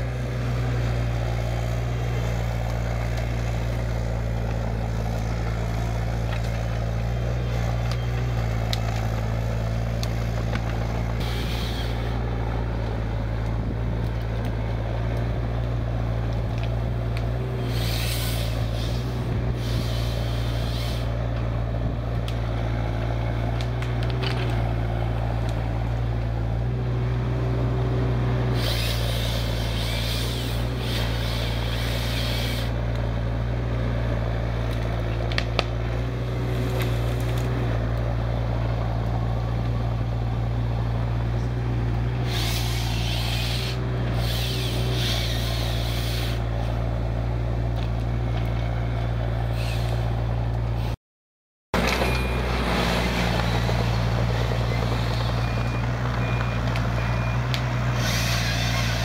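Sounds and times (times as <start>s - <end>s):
excavator diesel engine running: 0.0s - 51.0s, 51.7s - 59.0s
hiss: 11.2s - 12.1s, 17.6s - 21.2s, 28.6s - 32.8s, 42.3s - 46.4s.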